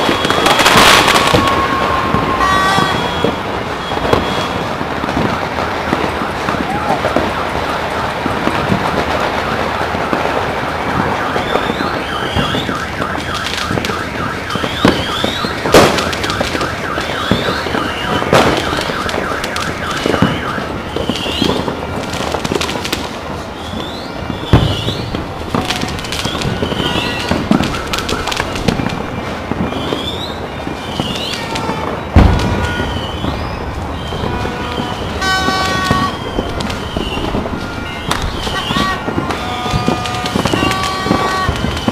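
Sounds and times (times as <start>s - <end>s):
fireworks booms: 0.0s - 41.9s
fireworks crackling and popping: 0.0s - 41.9s.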